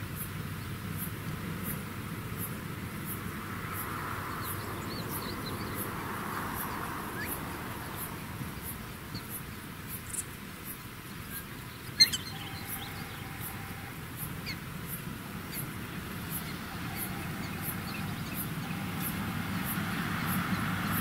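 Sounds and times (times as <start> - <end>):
prairie dog chirping: 11.3 - 14.6, 15.4 - 19.3.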